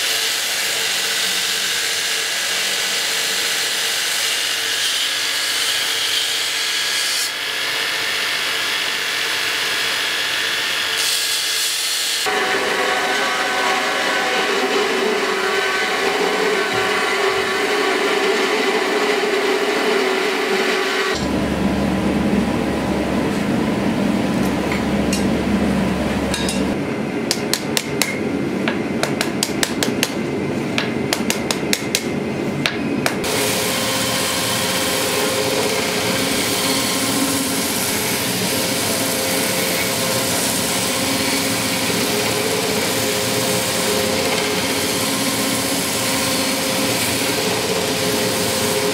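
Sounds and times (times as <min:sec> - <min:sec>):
low hum: 0:12.3 - 0:27.3
belt grinder grinding steel: 0:33.2 - 0:48.9.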